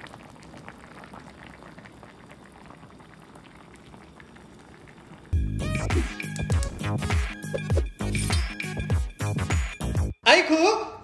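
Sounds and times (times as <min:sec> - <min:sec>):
soup bubbling in a pan: 0:00.0 - 0:05.6.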